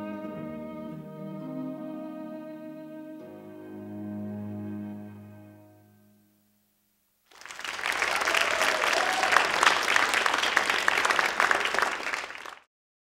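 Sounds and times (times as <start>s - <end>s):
audience applauding: 7.3s - 12.7s.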